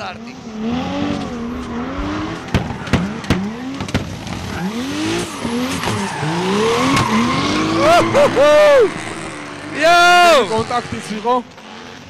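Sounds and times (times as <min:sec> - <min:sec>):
car engines revving: 0:00.0 - 0:12.0
tyres squealing and skidding: 0:00.6 - 0:12.0
sharp exhaust pops: 0:01.1 - 0:07.2.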